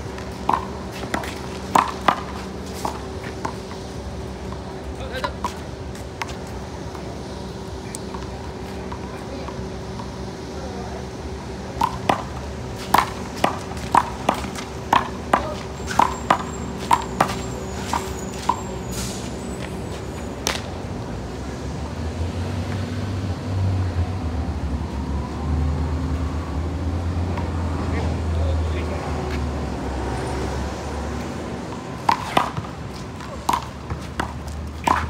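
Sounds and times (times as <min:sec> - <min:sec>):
low traffic rumble: 0:00.0 - 0:35.0.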